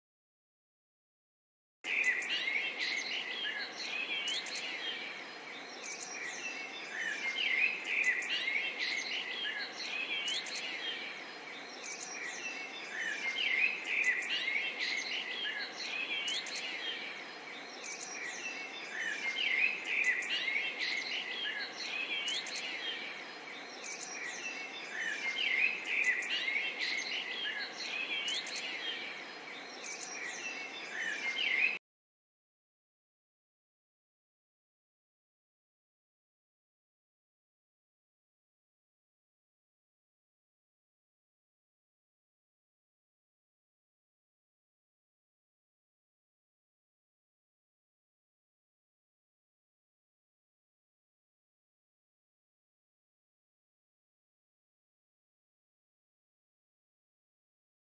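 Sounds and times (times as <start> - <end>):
songbirds chirping and trilling: 1.8 - 31.8
faint steady hiss: 1.9 - 31.8.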